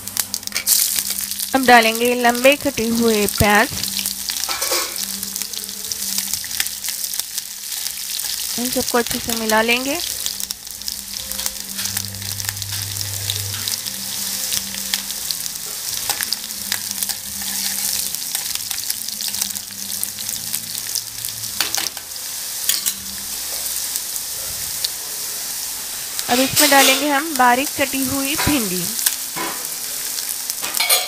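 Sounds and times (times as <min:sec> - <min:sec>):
onions sizzling in hot oil: 0:00.0 - 0:31.0.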